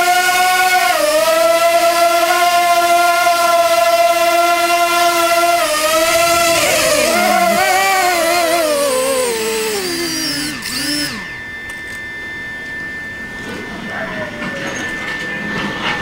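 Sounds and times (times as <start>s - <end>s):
drone propeller motors winding down: 0.0s - 12.8s
steady high thin tone: 5.3s - 15.5s.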